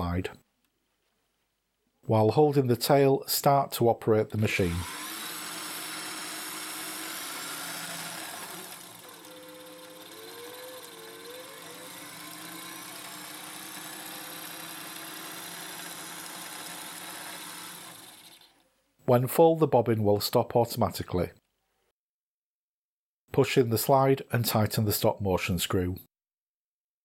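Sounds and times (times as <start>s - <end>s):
sewing machine motor whirring: 4.4s - 18.7s.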